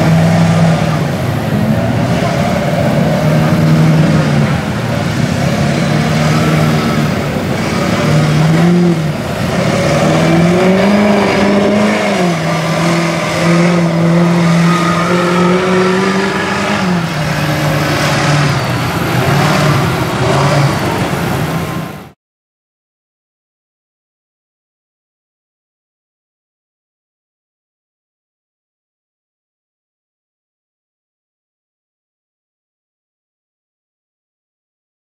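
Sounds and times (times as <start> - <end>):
truck engine revving: 0.0 - 22.2.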